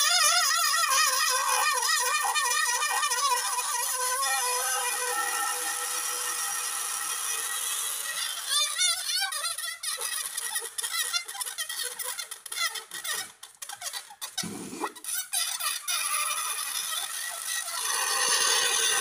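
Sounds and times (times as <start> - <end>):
air squealing from balloon neck: 0.0 - 19.0
rubber balloon squeaks: 8.1 - 19.0.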